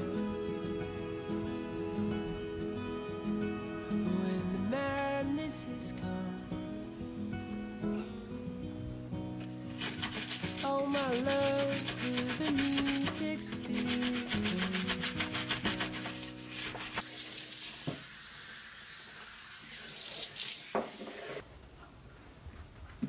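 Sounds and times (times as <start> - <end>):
brush scrubbing a metal sink: 9.7 - 17.8
tap water running: 9.7 - 21.4.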